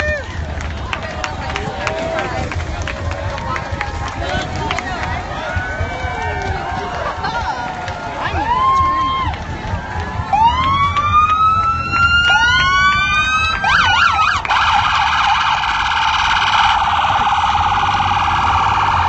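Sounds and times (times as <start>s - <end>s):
electronic siren wailing: 10.3s - 19.0s.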